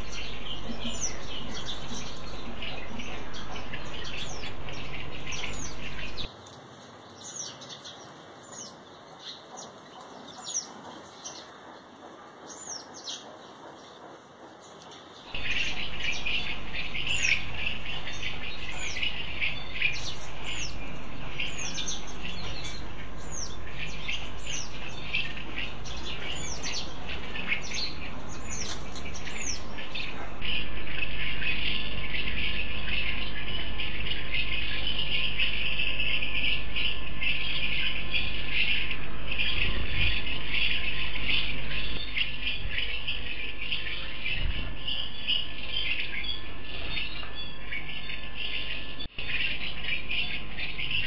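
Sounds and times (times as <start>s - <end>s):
birds chirping: 0.0s - 51.0s
dense high bird chatter: 0.0s - 51.0s.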